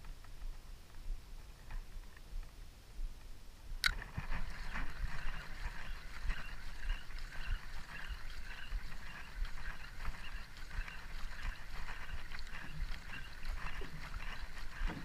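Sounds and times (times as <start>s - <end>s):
sharp click: 3.8s - 4.0s
water lapping at boat: 3.8s - 15.0s.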